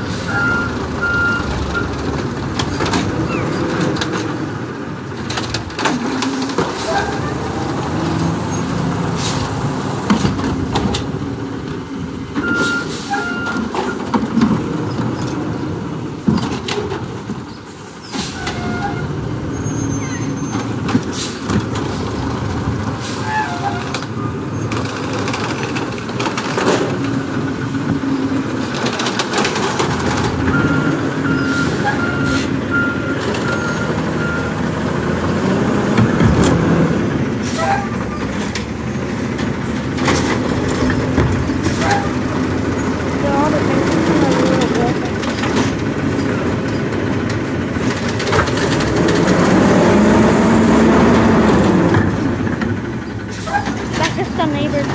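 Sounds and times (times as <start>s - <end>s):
garbage truck engine running: 0.0s - 54.9s
brake and hydraulic hisses: 6.6s - 10.0s, 12.5s - 14.1s, 17.5s - 18.9s, 19.7s - 24.0s, 31.3s - 32.8s, 52.6s - 54.3s.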